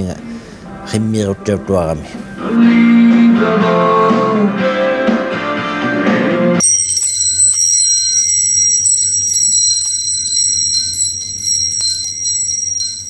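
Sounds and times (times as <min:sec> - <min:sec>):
metal wind chimes ringing: 0:06.6 - 0:13.0.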